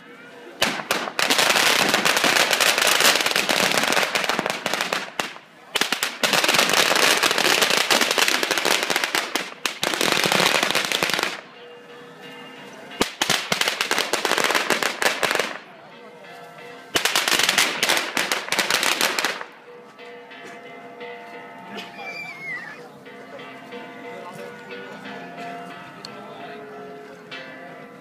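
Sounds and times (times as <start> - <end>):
firecrackers crackling: 0.6 - 11.4, 13.0 - 15.6, 17.0 - 19.6.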